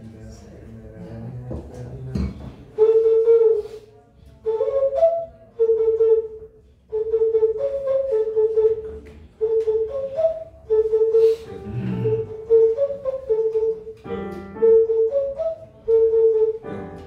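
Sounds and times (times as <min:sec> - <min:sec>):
vessel flute playing: 0:02.8 - 0:17.0
breaths: 0:11.2 - 0:12.0.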